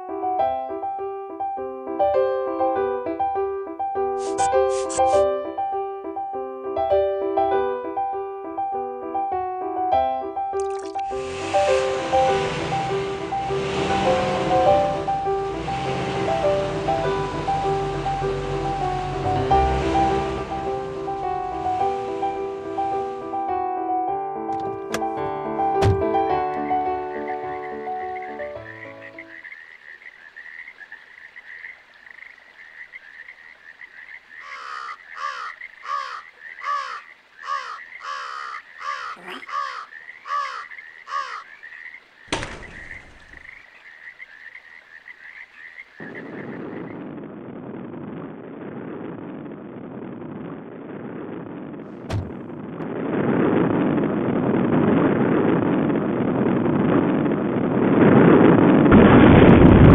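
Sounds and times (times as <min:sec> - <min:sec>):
small car engine running: 0:11.2 - 0:23.2
crow cawing: 0:34.4 - 0:41.9.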